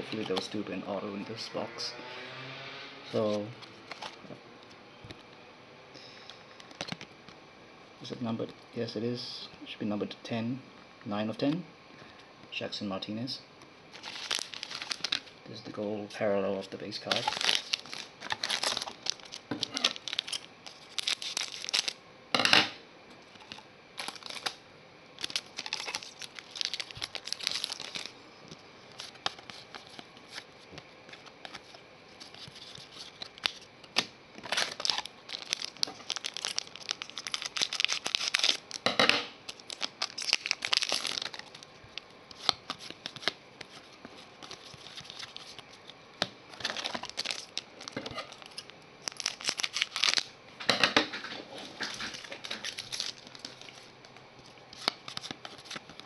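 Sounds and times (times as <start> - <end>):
cards sliding into plastic sleeve: 0.0 - 0.6, 28.9 - 36.6, 42.3 - 45.8, 54.7 - 56.0.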